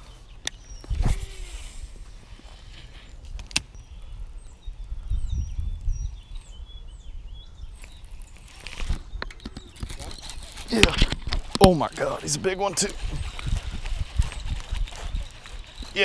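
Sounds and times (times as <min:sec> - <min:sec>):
wind rumbling on microphone: 0:00.0 - 0:16.0
high bird chirps: 0:02.9 - 0:10.8.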